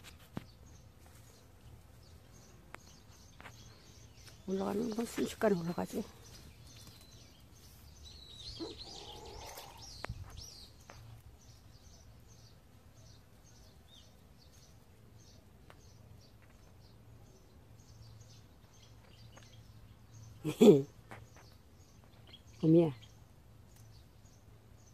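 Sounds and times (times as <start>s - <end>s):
small bird chirping: 0.0s - 24.9s
bird warbling: 8.5s - 10.0s.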